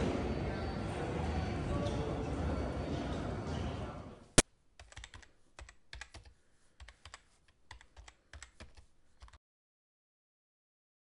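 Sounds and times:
keyboard typing: 4.8 - 9.4.

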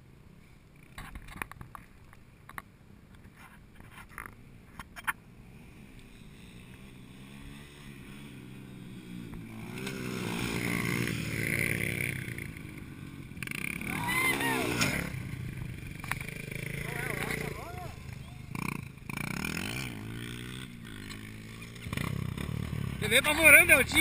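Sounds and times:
dirt bike engine: 0.5 - 24.0.

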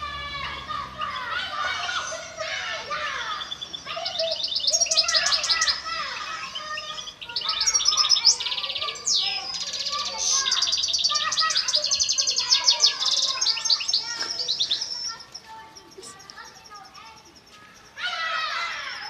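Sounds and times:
goldfinch twittering song: 3.1 - 17.9.

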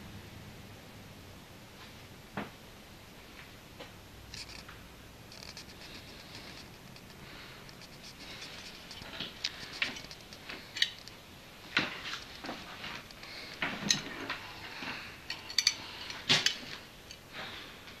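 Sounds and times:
rustling of handling: 4.3 - 17.7.

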